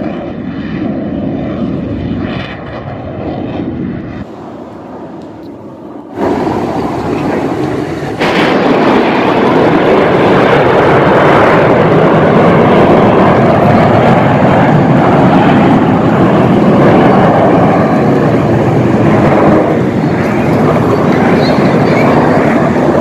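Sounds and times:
jet aircraft flying low overhead: 0:00.0 - 0:23.0.

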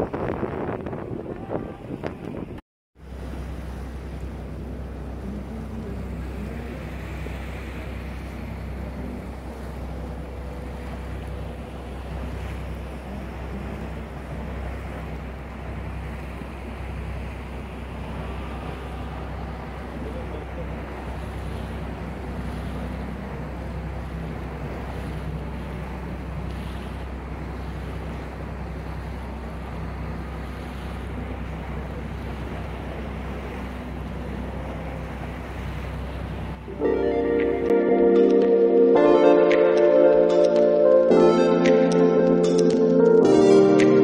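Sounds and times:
wind on microphone: 0:00.0 - 0:02.6
water rushing along boat hull: 0:00.0 - 0:44.0.

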